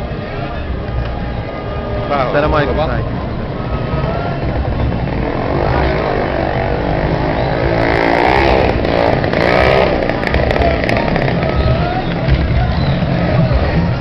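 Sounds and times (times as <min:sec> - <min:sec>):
crowd shouting and chanting: 0:00.0 - 0:14.0
vehicle engines running: 0:00.0 - 0:14.0.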